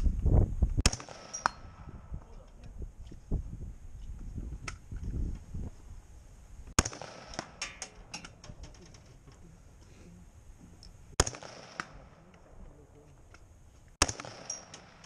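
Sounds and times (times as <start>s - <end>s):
gunshots with echo: 0.8s - 2.1s, 6.8s - 7.6s, 11.2s - 12.4s, 14.0s - 15.0s.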